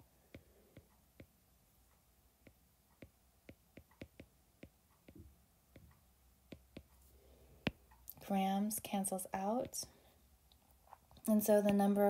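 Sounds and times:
stylus tapping on glass screen: 2.4 - 7.0.

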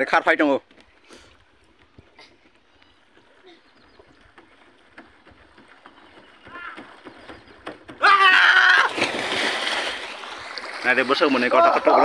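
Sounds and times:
bare feet running on plastic dock: 0.6 - 10.8
person yelling: 8.0 - 8.9
splash into water: 8.4 - 12.0.

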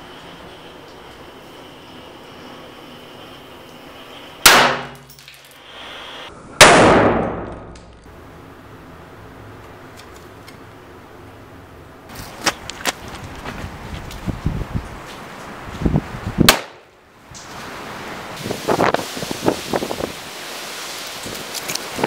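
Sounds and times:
cannon shots with metallic ring: 4.4 - 5.4, 6.6 - 7.8.

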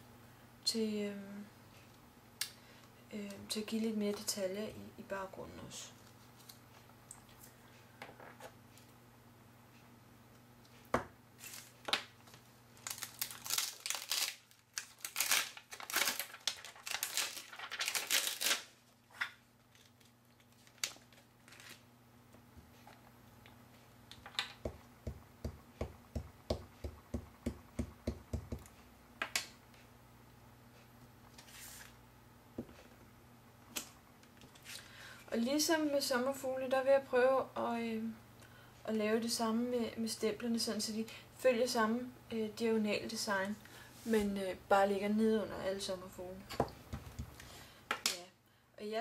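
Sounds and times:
plastic sheet crinkling: 11.4 - 21.9.

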